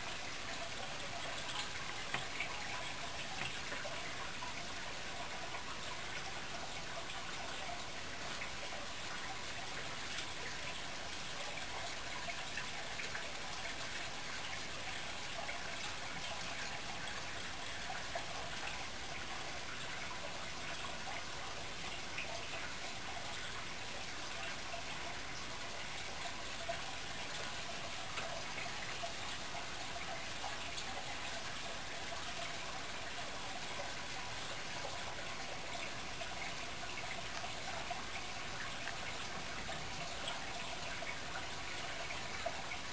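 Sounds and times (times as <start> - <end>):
aquarium water bubbling: 0.0 - 42.9.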